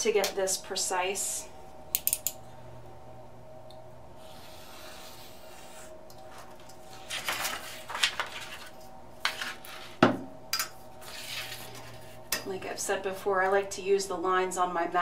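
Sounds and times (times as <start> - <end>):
paper rustling: 6.4 - 10.0.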